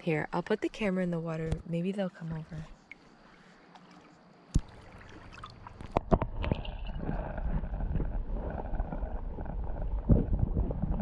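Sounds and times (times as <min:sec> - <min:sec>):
clicks and splashes: 0:03.7 - 0:08.1
muffled underwater rumble: 0:05.6 - 0:11.0.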